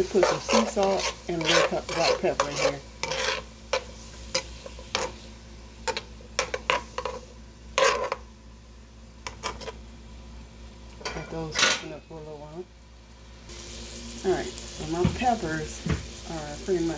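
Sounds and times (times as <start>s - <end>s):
utensil scraping a pan: 0.0s - 5.2s, 7.8s - 8.2s
faint sizzle of vegetables: 0.0s - 16.9s.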